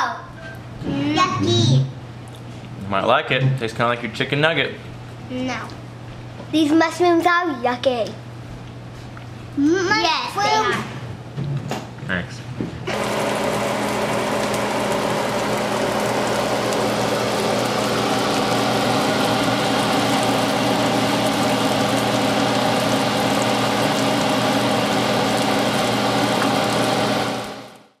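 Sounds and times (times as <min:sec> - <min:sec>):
low even hum: 0:00.3 - 0:05.4
food sizzling in oil: 0:12.9 - 0:27.8.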